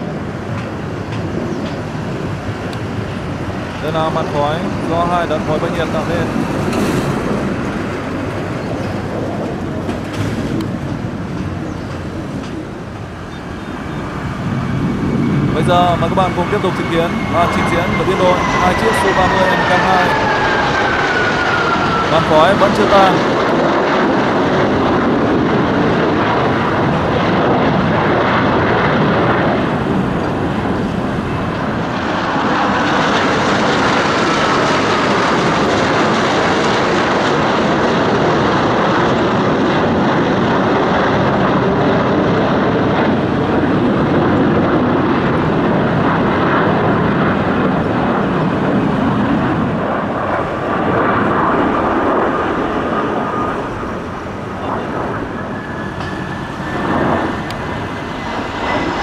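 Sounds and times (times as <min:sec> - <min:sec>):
jet engines roaring: 0:00.0 - 0:59.0
high whine falling in pitch: 0:03.7 - 0:09.6, 0:12.7 - 0:25.3, 0:50.6 - 0:59.0.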